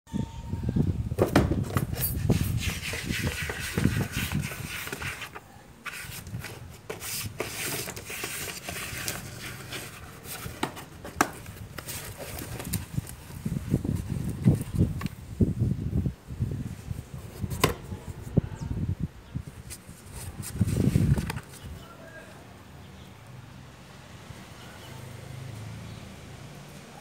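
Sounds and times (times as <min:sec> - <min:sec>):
cardboard box scraping on concrete: 0:01.6 - 0:15.1.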